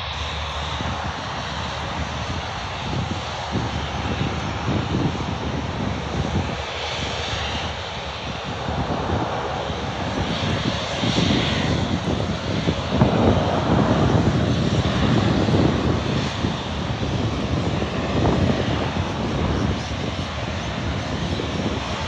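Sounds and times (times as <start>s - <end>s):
aircraft engine rumble: 0.0s - 22.0s
wind buffeting microphone: 0.0s - 22.0s.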